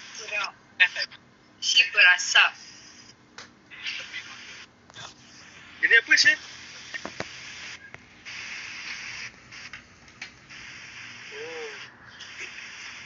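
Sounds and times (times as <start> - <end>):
hair steamer hissing: 0.0 - 1.1, 3.8 - 13.0
person humming: 11.3 - 12.5.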